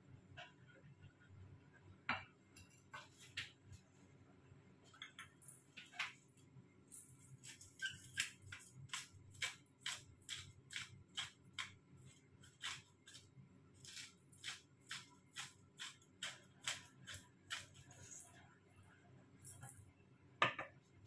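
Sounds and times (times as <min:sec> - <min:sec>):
spice grinder crunching: 0:07.0 - 0:18.1.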